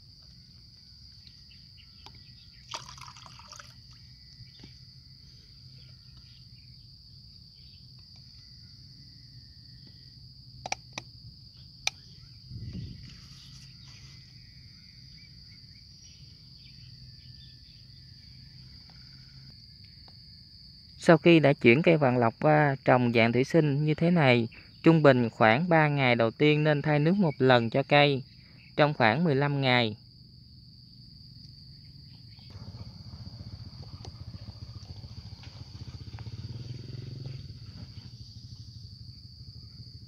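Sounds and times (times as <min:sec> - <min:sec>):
insect drone: 0:00.0 - 0:40.0
water splash: 0:02.6 - 0:03.9.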